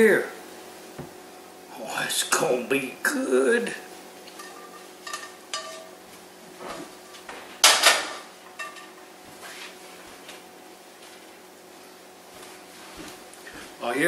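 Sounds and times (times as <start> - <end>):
spatula clinking on skillet: 4.3 - 6.0, 8.5 - 9.0
skillet clanking set down: 4.4 - 5.9, 7.3 - 9.0.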